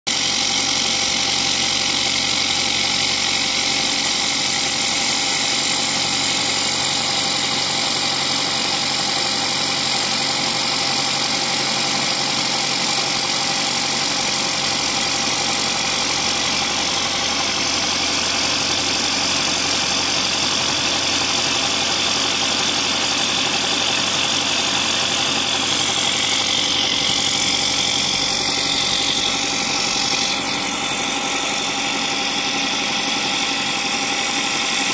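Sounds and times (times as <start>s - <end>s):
spindle running: 0.1s - 34.9s
milling cutter hissing: 12.4s - 34.9s.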